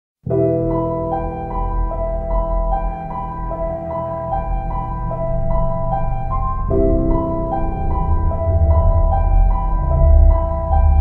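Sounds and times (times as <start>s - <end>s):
background piano music: 0.2s - 11.0s.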